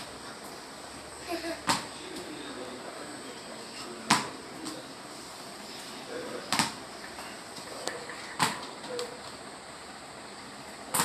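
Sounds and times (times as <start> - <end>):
tennis ball hitting tiled floor: 1.6 - 2.3, 4.0 - 4.8, 6.5 - 7.2, 8.3 - 9.4.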